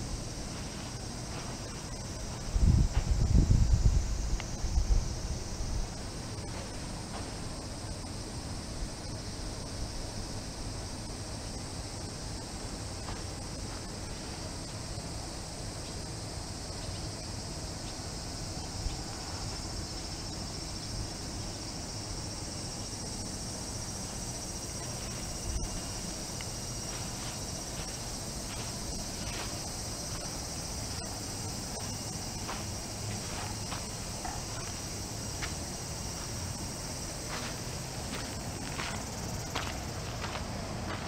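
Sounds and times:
footsteps crunching on sand: 0:00.0 - 0:07.8, 0:13.0 - 0:14.8, 0:23.4 - 0:41.0
insects chorus: 0:00.0 - 0:41.0.

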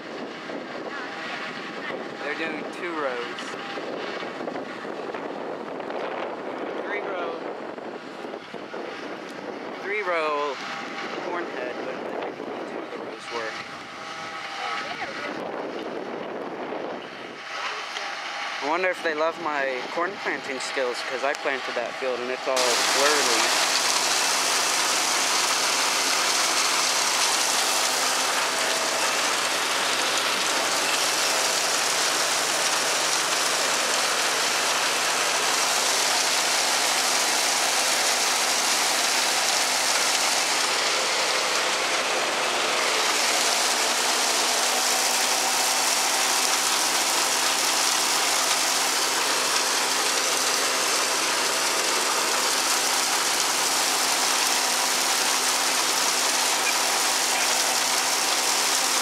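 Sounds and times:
silage blower whirring: 0:00.0 - 0:59.0
falling silage hiss: 0:22.6 - 0:59.0.

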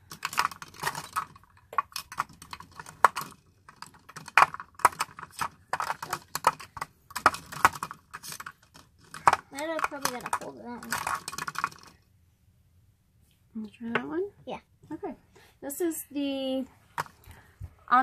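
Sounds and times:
plastic makeup cases clattering: 0:00.0 - 0:12.0.

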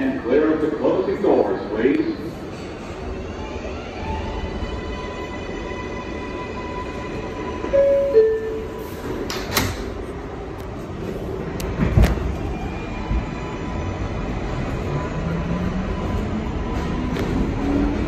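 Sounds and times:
train doors closing thud: 0:08.9 - 0:10.0.

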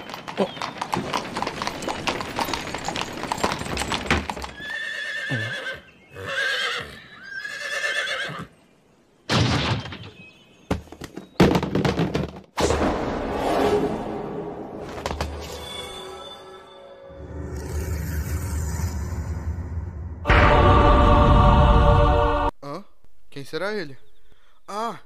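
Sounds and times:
horse hooves clip-clopping: 0:00.0 - 0:04.8
horse whinnying: 0:04.4 - 0:08.5.

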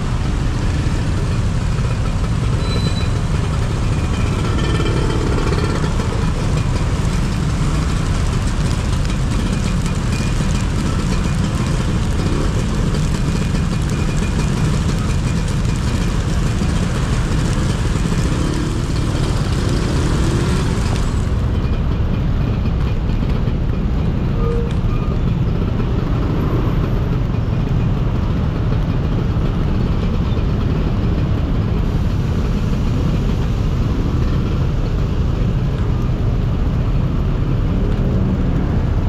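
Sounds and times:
motorbike engine: 0:00.0 - 0:24.2
surrounding vehicles: 0:00.0 - 0:39.0.

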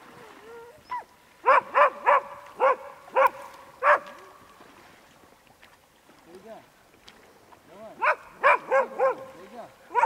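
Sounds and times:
dog barking: 0:01.4 - 0:04.2, 0:08.0 - 0:10.0.

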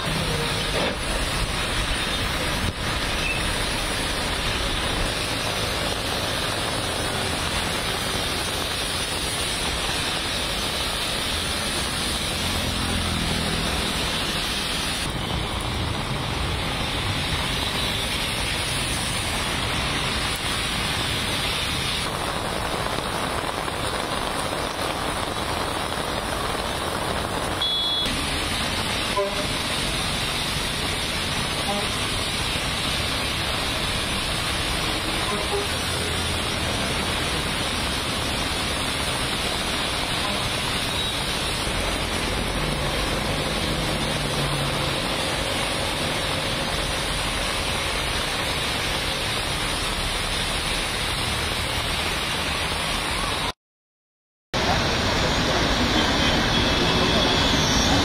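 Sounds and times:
heavy rain and splashing: 0:00.0 - 0:53.6, 0:54.5 - 0:58.0
traffic moving through water: 0:00.0 - 0:53.6, 0:54.6 - 0:58.0
high beep: 0:27.6 - 0:28.1.

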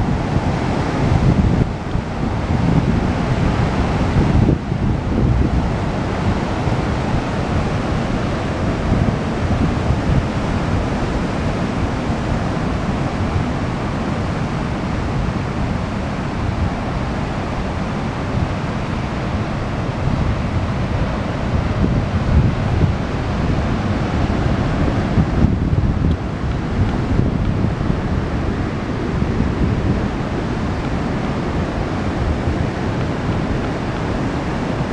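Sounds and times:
ocean surf washing over beach: 0:00.0 - 0:34.9
wind buffeting microphone: 0:00.0 - 0:34.9.

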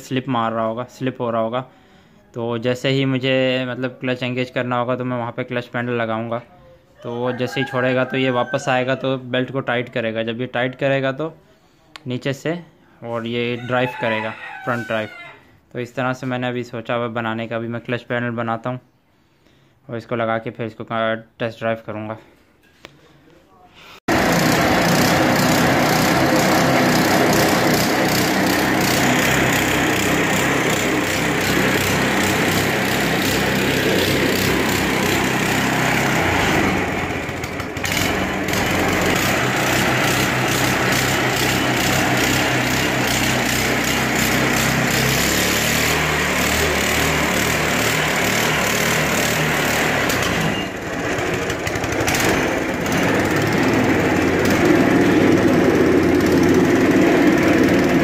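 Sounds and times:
small engine running: 0:24.1 - 0:58.0.

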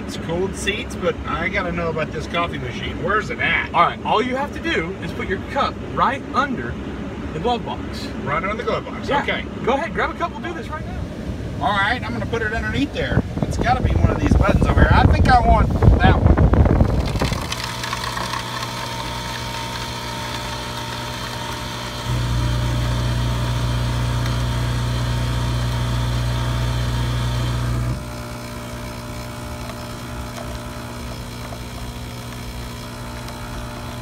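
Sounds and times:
coffee machine humming: 0:16.4 - 0:34.0.

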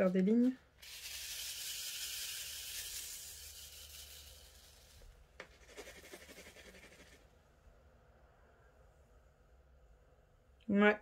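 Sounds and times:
tiny beads shaken in plastic tray: 0:00.0 - 0:07.2.

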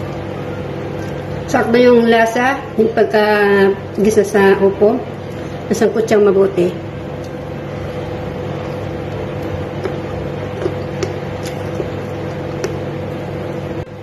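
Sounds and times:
motor humming: 0:06.8 - 0:14.0.

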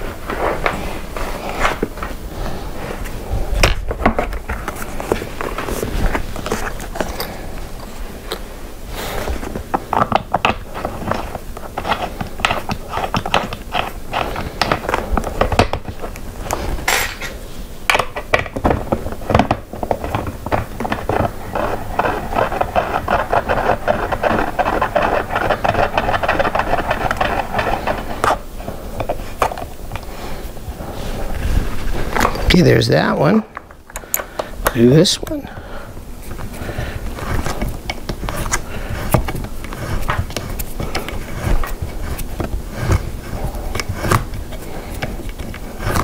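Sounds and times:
screw scraping metal: 0:20.8 - 0:29.6.

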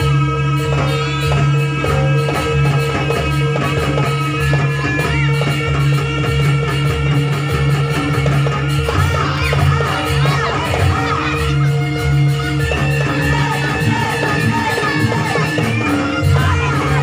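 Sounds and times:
drum strokes: 0:00.0 - 0:17.0.

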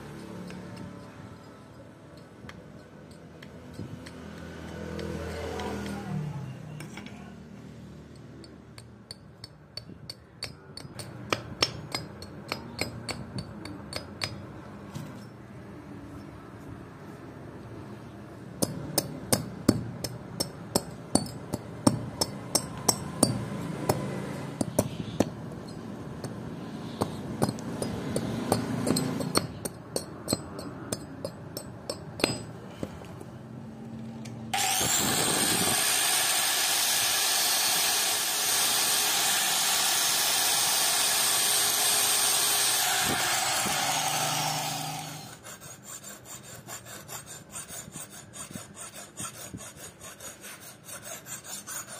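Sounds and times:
power tool running: 0:34.5 - 0:45.4.

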